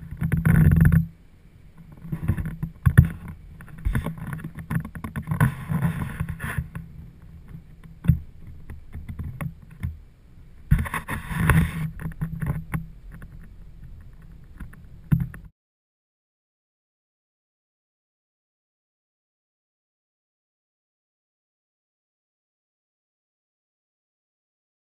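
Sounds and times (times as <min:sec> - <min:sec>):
knocks and rubbing on pole: 0:01.9 - 0:06.8, 0:10.7 - 0:15.5.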